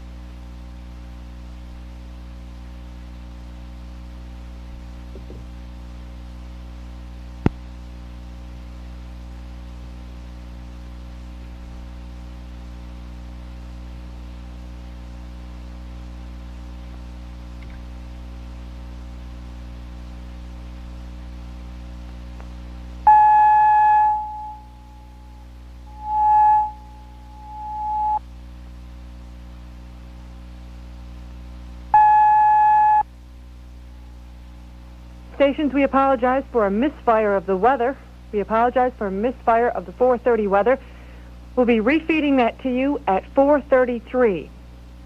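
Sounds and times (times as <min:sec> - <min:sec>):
steady low hum: 0:00.0 - 0:45.0
click: 0:17.6 - 0:17.8
loud steady electronic tone: 0:23.0 - 0:28.3, 0:31.9 - 0:33.1.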